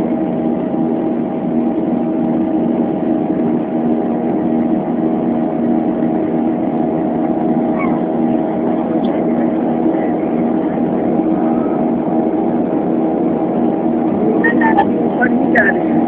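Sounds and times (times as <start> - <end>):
jet engines droning in cabin: 0.0 - 16.0.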